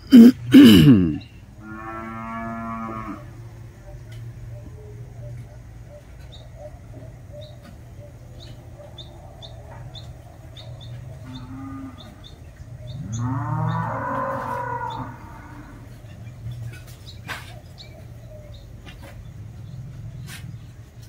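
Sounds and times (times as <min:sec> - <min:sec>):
cattle mooing: 0:00.6 - 0:03.3, 0:11.2 - 0:12.2, 0:13.0 - 0:16.0
small bird chirping: 0:03.8 - 0:21.0.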